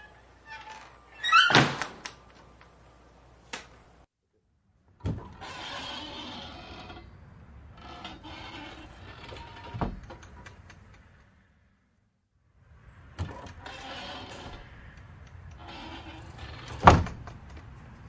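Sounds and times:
rattling creak: 0:00.0 - 0:02.2, 0:05.2 - 0:11.4, 0:13.2 - 0:17.8
screen door squeaking: 0:00.0 - 0:02.6, 0:05.0 - 0:10.4, 0:13.2 - 0:17.4
screen door slapping shut: 0:00.4 - 0:02.3, 0:15.6 - 0:17.6.

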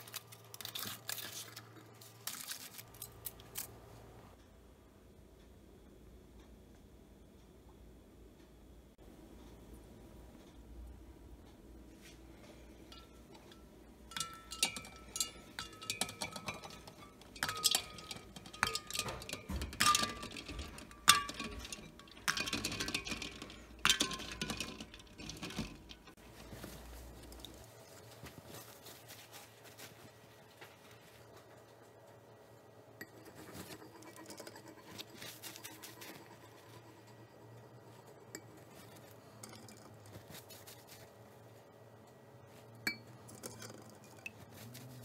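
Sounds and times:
eggs and ice clinking in metal pot: 0:12.8 - 0:26.2, 0:42.8 - 0:44.9.

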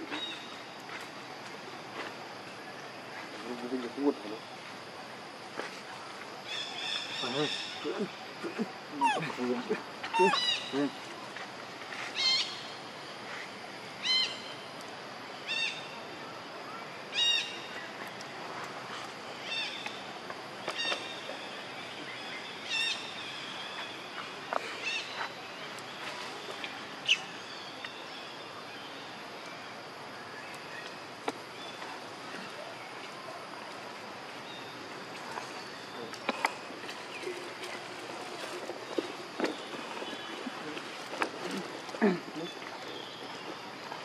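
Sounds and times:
steady outdoor hiss: 0:00.0 - 0:44.0
high-pitched animal calls: 0:08.9 - 0:09.4, 0:10.0 - 0:10.9.

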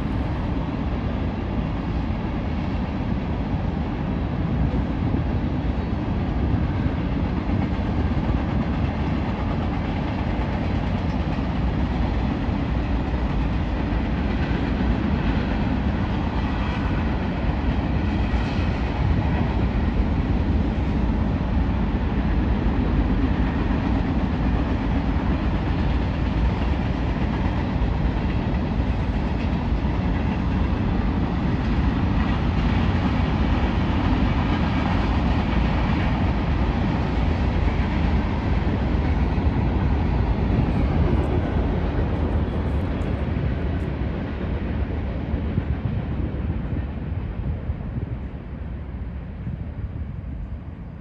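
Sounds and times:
train wheels rumbling on rail: 0:00.0 - 0:51.0.

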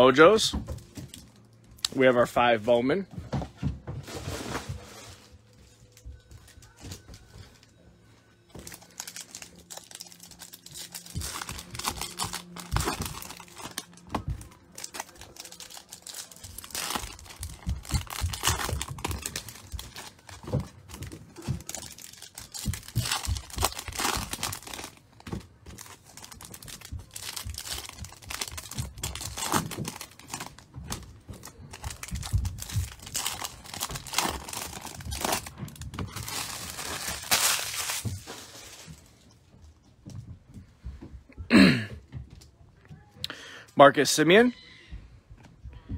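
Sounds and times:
wrappers crinkling and tearing: 0:08.5 - 0:39.3.

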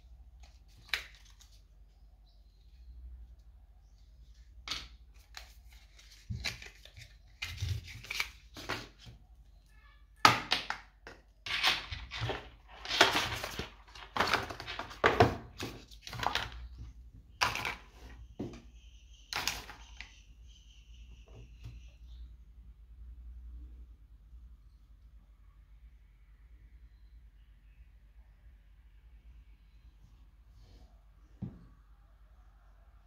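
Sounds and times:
packaging rustling and crinkling: 0:11.6 - 0:16.7.

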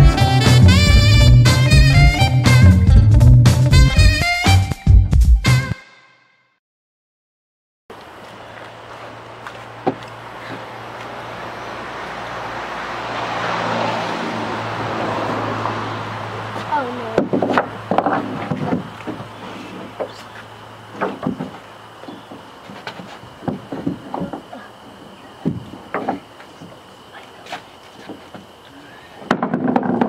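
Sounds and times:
vehicle passing by: 0:08.4 - 0:17.9
lumber and tools knocking on wood: 0:09.8 - 0:10.6, 0:17.1 - 0:19.3, 0:20.9 - 0:21.6, 0:22.2 - 0:24.7, 0:25.4 - 0:26.8, 0:29.3 - 0:30.0.

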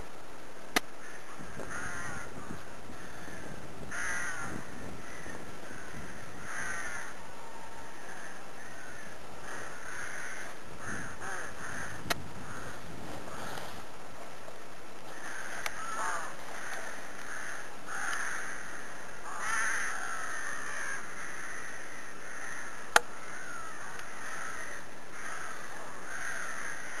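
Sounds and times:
crows cawing: 0:00.9 - 0:13.7, 0:15.0 - 0:27.0.

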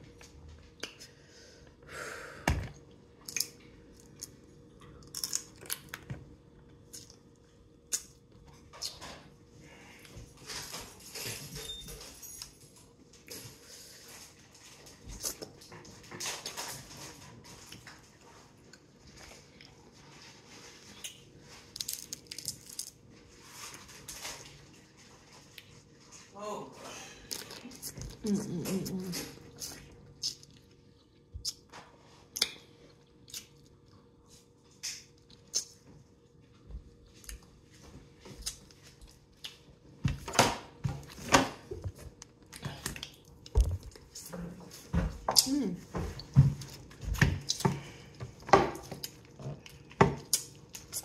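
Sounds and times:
wet chewing and lip smacks: 0:32.3 - 0:34.1, 0:34.8 - 0:35.8, 0:42.1 - 0:44.2.

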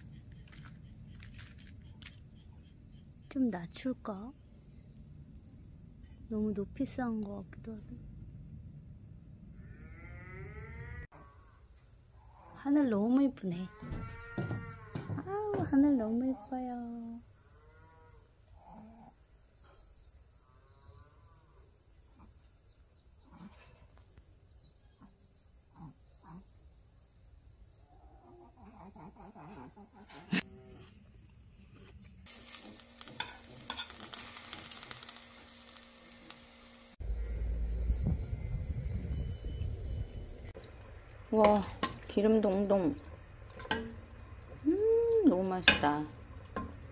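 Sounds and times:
insects chirring: 0:00.0 - 0:46.9
crackling sizzle: 0:31.5 - 0:46.9.

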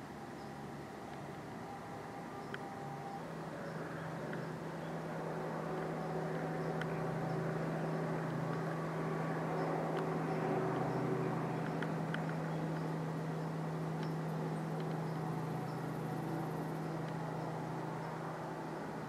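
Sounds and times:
distant engine humming: 0:00.0 - 0:19.0
faint clicks: 0:06.6 - 0:07.0, 0:11.6 - 0:12.9, 0:14.8 - 0:15.1.

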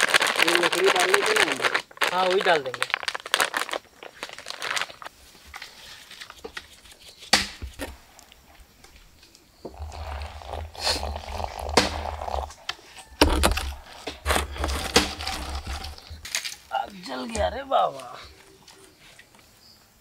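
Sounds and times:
plastic snack packet crinkling: 0:00.0 - 0:06.8, 0:09.8 - 0:16.5.

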